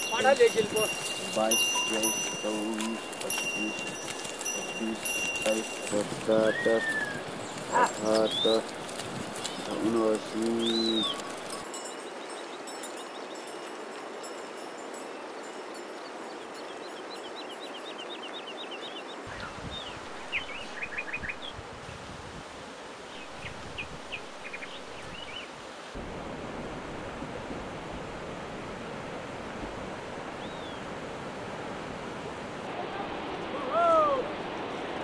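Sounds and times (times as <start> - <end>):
birds chirping: 0.0 - 13.7, 15.1 - 21.6, 23.0 - 25.5.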